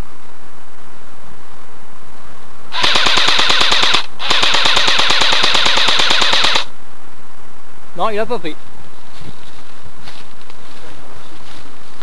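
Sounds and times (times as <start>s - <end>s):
airsoft rifle automatic bursts: 2.7s - 6.7s.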